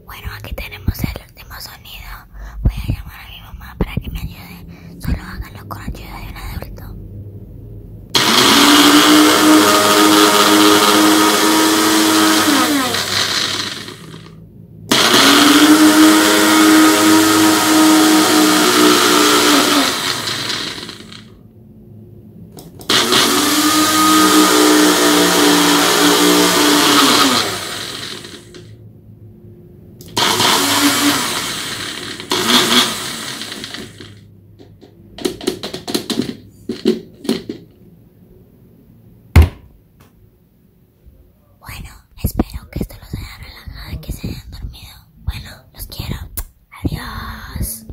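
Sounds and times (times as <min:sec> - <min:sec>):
blender motor running: 0:08.1 - 0:21.3, 0:22.8 - 0:28.7, 0:30.0 - 0:34.2.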